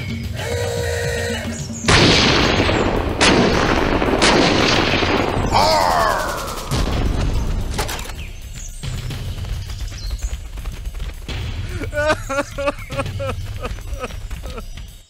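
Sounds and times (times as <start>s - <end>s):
toy cannon blasts: 1.9s - 5.6s.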